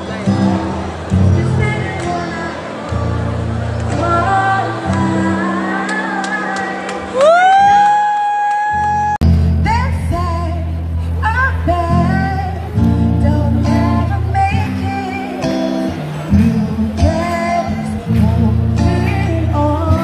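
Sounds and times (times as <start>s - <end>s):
amplified electric guitar: 0.0s - 20.0s
woman singing into microphone: 1.2s - 20.0s.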